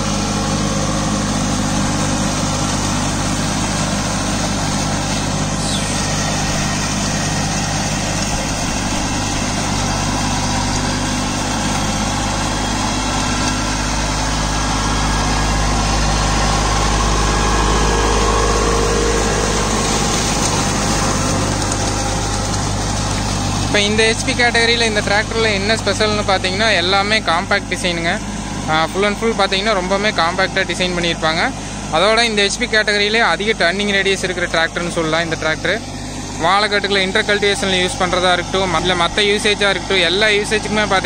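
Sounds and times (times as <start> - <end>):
rotary tiller churning mud: 0.0 - 41.0
tractor diesel engine under load: 0.0 - 41.0.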